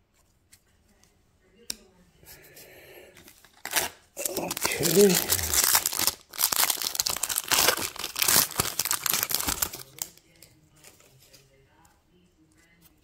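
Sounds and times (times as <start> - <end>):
plastic wrapper crinkling: 3.3 - 10.5.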